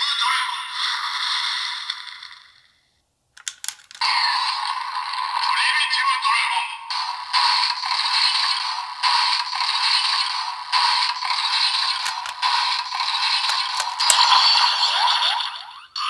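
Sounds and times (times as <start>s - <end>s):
sharp plastic clicks: 3.4s - 4.0s, 10.8s - 14.3s
tinny electronic toy loop: 3.4s - 16.0s.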